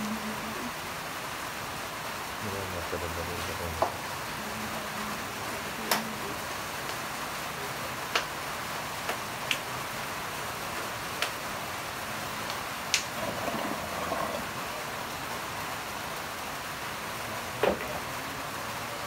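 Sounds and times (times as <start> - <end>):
steady background hiss: 0.0 - 19.0
faint murmur of voices: 17.2 - 19.0.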